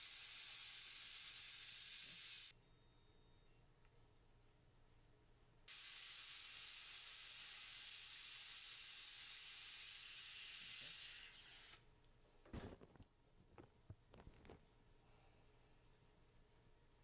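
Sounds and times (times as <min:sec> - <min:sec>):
dental air hissing: 0:00.0 - 0:02.5, 0:05.7 - 0:11.8.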